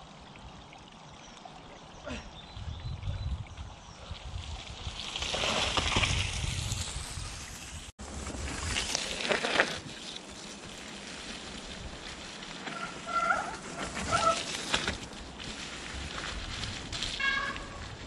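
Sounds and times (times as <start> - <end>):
bike tyres rolling on trail: 3.5 - 18.0
crackling leaf rustles: 4.4 - 18.0.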